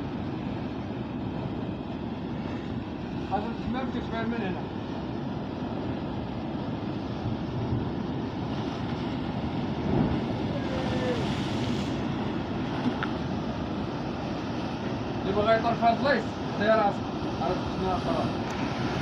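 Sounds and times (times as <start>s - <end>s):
surf washing against rocks: 0.0s - 19.0s
wind on microphone: 7.0s - 14.6s.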